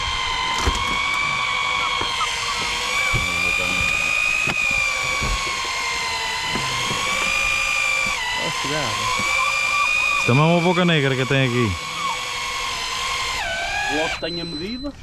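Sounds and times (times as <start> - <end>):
motor whining: 0.0 - 15.0
knocks and thumps: 0.6 - 8.2.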